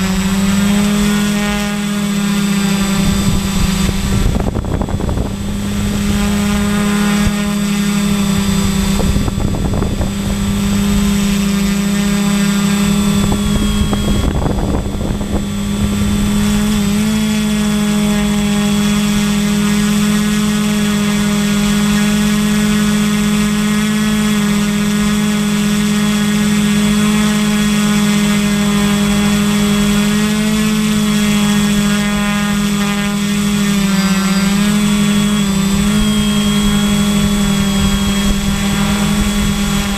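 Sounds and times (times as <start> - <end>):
drone motors whining: 0.0 - 20.4, 29.0 - 39.9.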